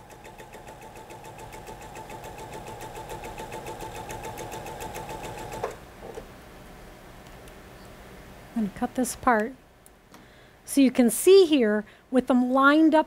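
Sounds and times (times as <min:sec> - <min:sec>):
electric sewing machine running: 0:00.0 - 0:05.8.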